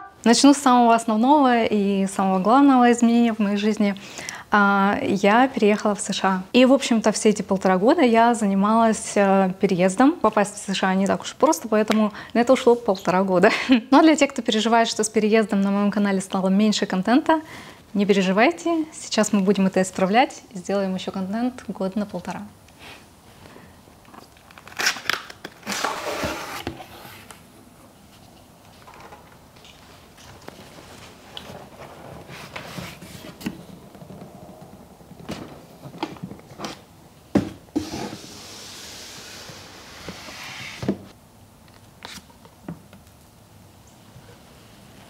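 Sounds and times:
long scraping hiss: 37.8 - 40.9.

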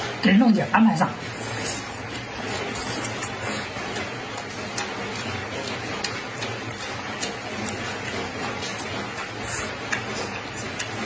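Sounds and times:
chewing with mouth clicks: 1.3 - 11.0.

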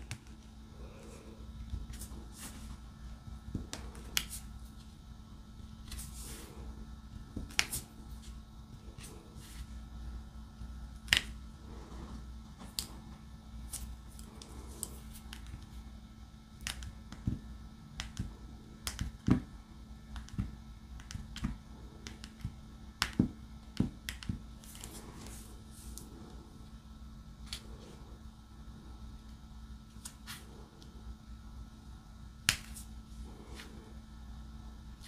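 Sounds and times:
faint steady hum: 0.0 - 35.0.

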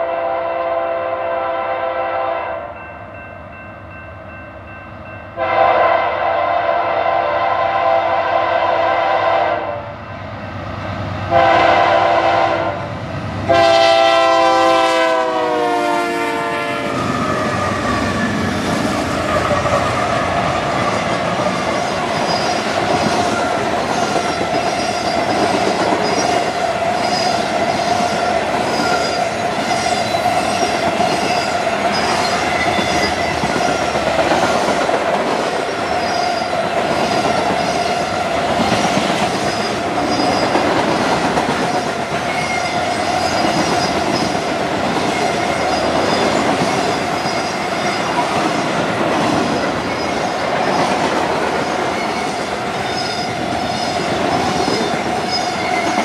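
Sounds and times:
locomotive air horn blasts: 0.0 - 2.8, 5.4 - 9.9, 11.3 - 12.9, 13.5 - 17.0.

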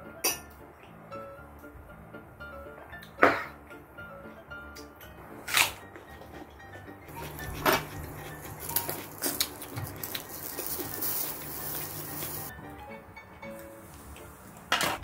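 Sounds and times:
background music: 0.0 - 15.0
meat sizzling on grill: 8.5 - 12.5.

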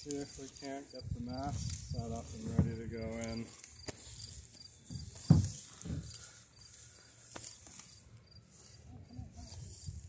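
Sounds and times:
wind rumble on microphone: 1.0 - 3.3, 8.9 - 10.0
thump: 4.9 - 6.1.

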